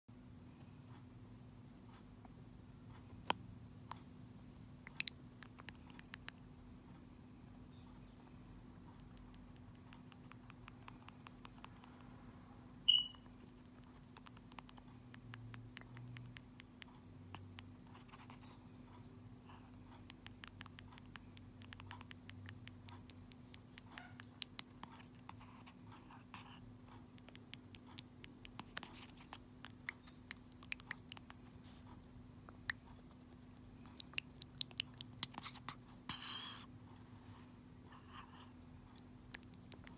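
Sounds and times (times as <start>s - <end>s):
high squeak: 12.9s - 13.2s.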